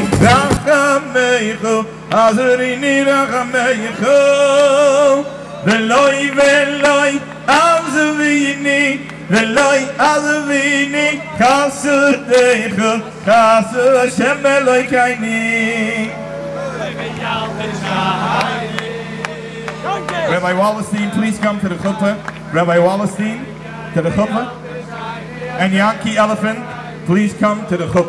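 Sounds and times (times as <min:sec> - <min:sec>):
held accompaniment note: 0:00.0 - 0:00.8, 0:16.1 - 0:25.6
man singing with vibrato: 0:00.0 - 0:28.0.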